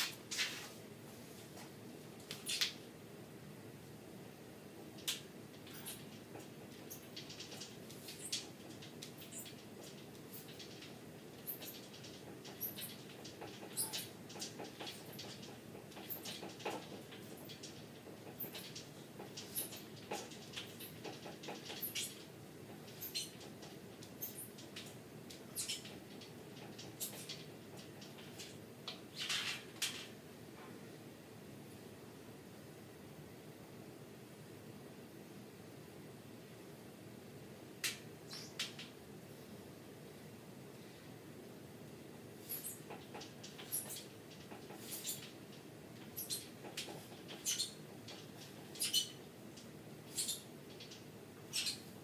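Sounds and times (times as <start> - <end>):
squeaks and clicks of dip station: 2.3 - 2.8, 5.0 - 29.8, 42.4 - 49.3, 50.1 - 51.9.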